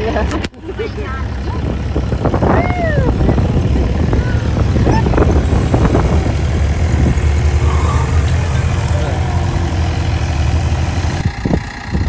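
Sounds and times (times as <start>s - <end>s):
jeep engine running: 0.0s - 12.0s
high rising and falling cry: 2.4s - 3.2s, 4.7s - 11.2s
people calling out: 2.4s - 6.5s, 7.3s - 10.4s.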